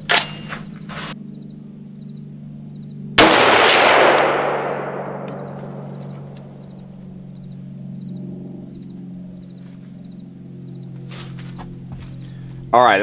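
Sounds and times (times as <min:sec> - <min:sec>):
rifle shot echoing: 0:03.2 - 0:07.0.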